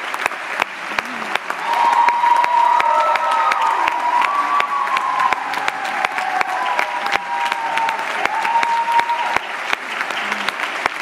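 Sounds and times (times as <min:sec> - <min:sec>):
audience applauding: 0:00.0 - 0:11.0
high held cheer: 0:01.0 - 0:11.0.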